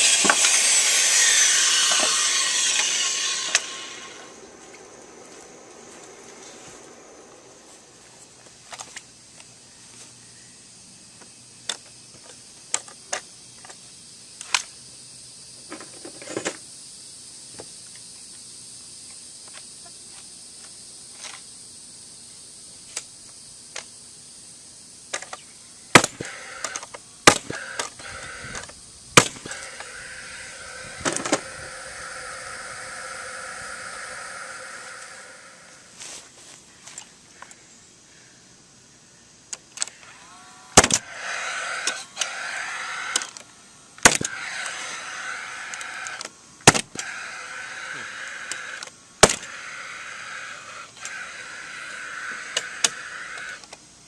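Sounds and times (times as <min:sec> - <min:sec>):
steady hum: 0:00.0 - 0:08.5, 0:26.0 - 0:36.0.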